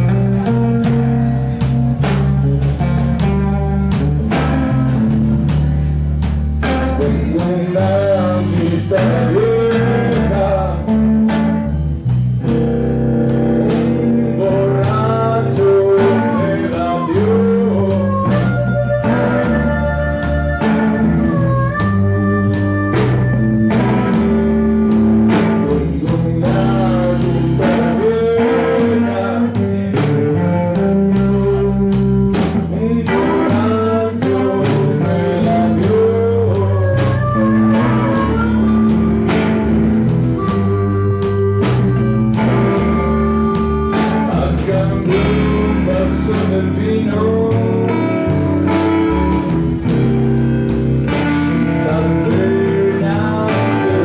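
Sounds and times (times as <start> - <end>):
man singing: 0.0 - 5.5, 6.6 - 11.8, 13.2 - 41.3, 41.9 - 50.1, 51.1 - 54.0
blues band playing: 0.0 - 54.0.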